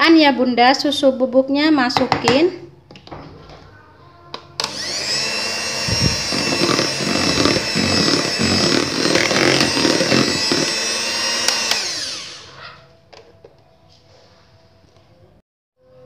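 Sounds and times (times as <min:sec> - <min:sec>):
electric hand mixer whining: 0:04.6 - 0:12.7.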